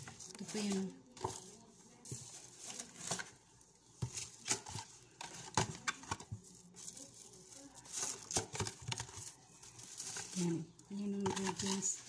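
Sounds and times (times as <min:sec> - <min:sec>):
spice packets tapping and rustling: 0:00.0 - 0:12.0.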